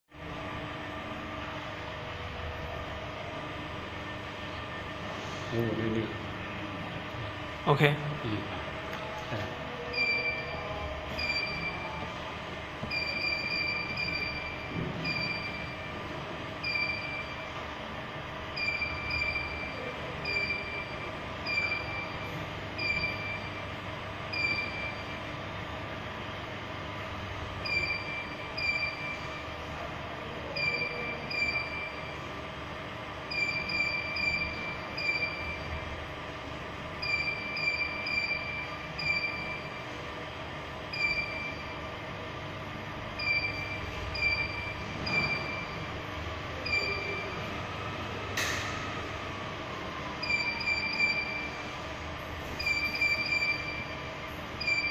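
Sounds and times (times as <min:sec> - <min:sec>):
machinery humming: 0:00.1 - 0:54.9
short high beeps: 0:09.8 - 0:12.0, 0:27.6 - 0:29.4, 0:30.5 - 0:32.1, 0:37.0 - 0:39.8, 0:40.9 - 0:41.7, 0:43.2 - 0:45.8, 0:46.6 - 0:47.4, 0:50.2 - 0:51.6.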